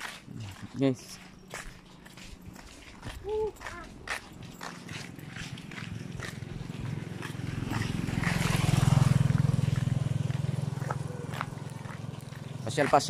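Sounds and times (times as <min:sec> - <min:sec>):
motorcycle engine passing by: 0:03.9 - 0:13.0.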